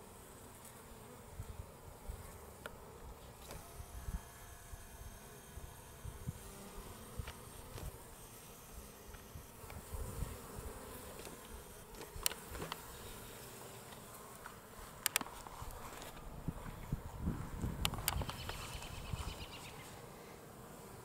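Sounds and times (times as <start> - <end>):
honeybees buzzing: 0.0 - 21.0
sharp clicks: 15.0 - 15.3.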